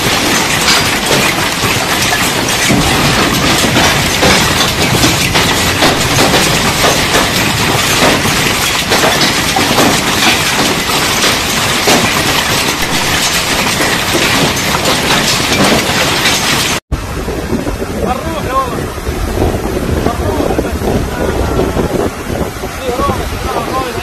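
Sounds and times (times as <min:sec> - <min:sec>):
heavy rain: 0:00.0 - 0:24.0
storm wind: 0:00.0 - 0:24.0
wind buffeting microphone: 0:16.9 - 0:24.0.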